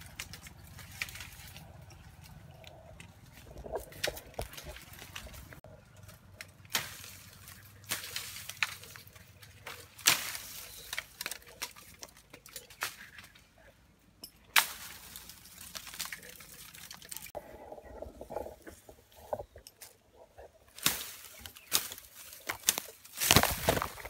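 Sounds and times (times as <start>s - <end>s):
branches snapping and cracking: 0.0s - 13.6s, 14.5s - 17.4s, 18.3s - 24.0s
rustling leaves and branches: 0.0s - 24.0s.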